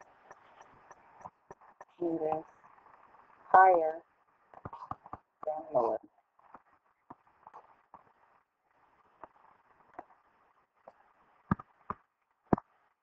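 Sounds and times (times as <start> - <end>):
clicks and taps on a screen: 4.5 - 5.6, 10.8 - 12.8.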